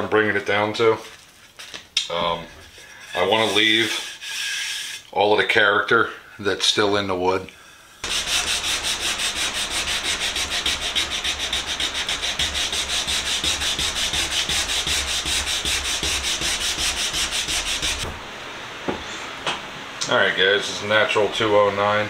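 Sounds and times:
sandpaper rasping on wood: 3.2 - 5.0, 8.0 - 18.1.

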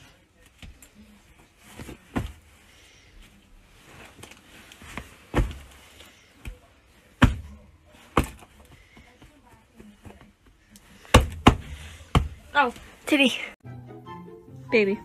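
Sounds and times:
hand slapping a bed: 5.0 - 6.6, 7.2 - 8.7, 11.0 - 12.8.

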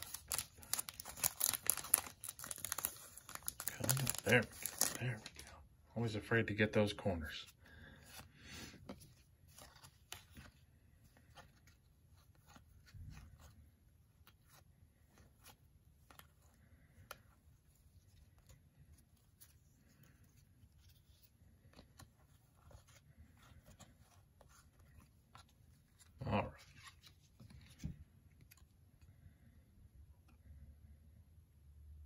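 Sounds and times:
trading cards flipping: 0.0 - 5.5, 8.8 - 13.6.

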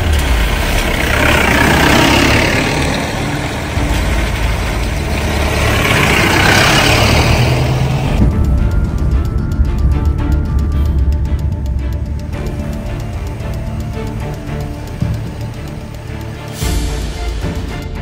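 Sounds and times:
vehicle engines running: 0.0 - 18.0.

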